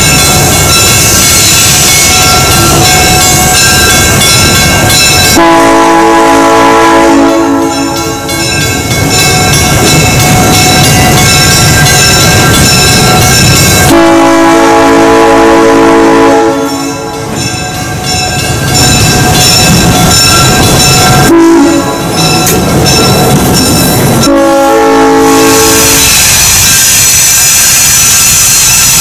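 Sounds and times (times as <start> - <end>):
train wheels on rails: 0.0 - 29.0
locomotive horn blasts: 5.4 - 8.0, 13.9 - 16.8, 21.3 - 22.0, 24.2 - 26.2.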